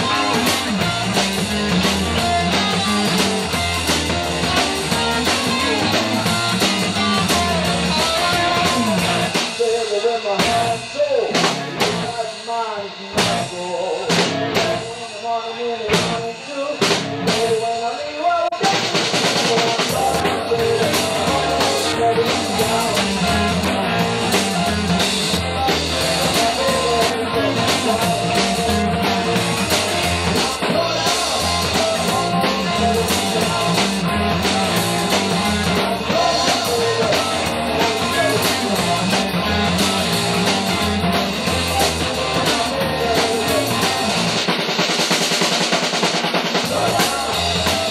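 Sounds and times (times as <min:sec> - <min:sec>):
bass line: 0:00.0 - 0:12.3, 0:13.0 - 0:15.1, 0:15.8 - 0:17.7, 0:18.7 - 0:44.8, 0:46.4 - 0:47.9
rock band playing: 0:00.0 - 0:47.9
drum hits: 0:18.7 - 0:47.9.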